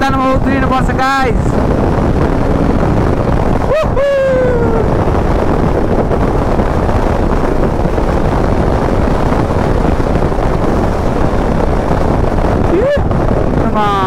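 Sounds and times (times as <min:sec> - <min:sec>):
wind buffeting microphone: 0:00.0 - 0:14.0
motorcycle engine running: 0:04.5 - 0:14.0.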